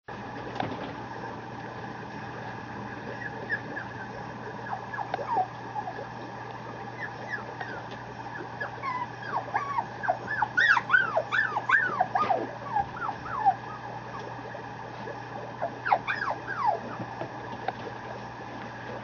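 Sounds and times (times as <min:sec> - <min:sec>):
puppy whimpering: 0:03.1 - 0:17.2.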